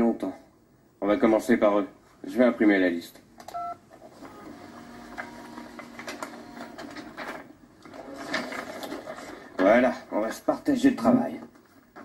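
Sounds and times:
dot-matrix printer printing: 3.6 - 9.6.

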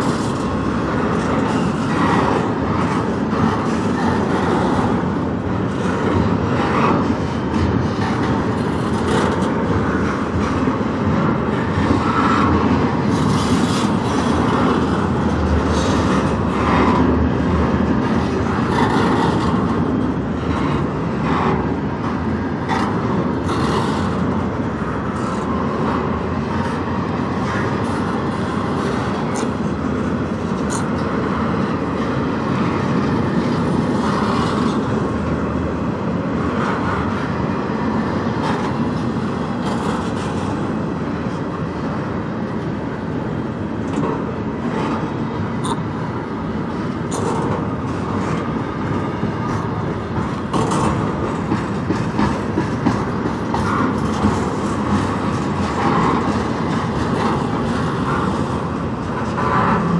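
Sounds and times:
train cars clanking: 0.0 - 59.9
train wheels rumbling on rail: 0.0 - 59.9.

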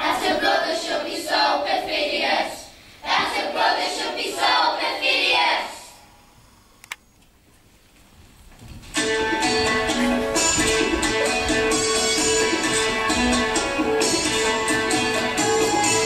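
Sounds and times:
children's voices in chorus: 0.0 - 6.0
click: 6.8 - 7.3.

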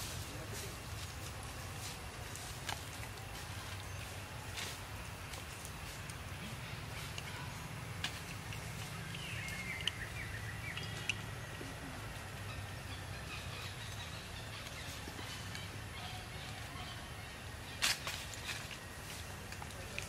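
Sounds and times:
low outdoor rumble: 0.0 - 20.0
sharp clicks: 8.0 - 10.1.

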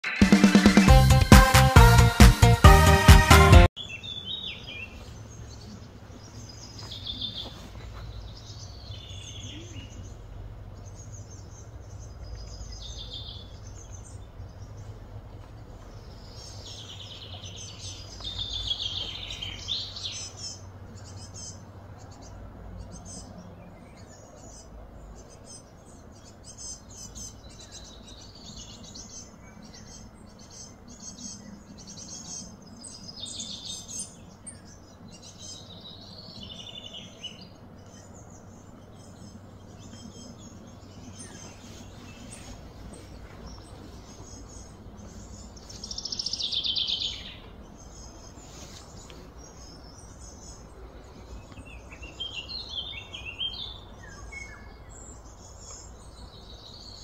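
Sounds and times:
birds chirping and singing: 0.0 - 57.0
steady low hum: 4.9 - 57.0.

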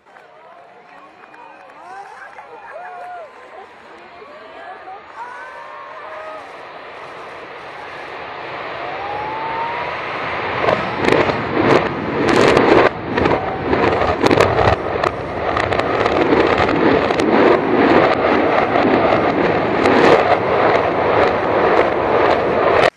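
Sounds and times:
rumbling roar of falling debris: 8.4 - 22.9.

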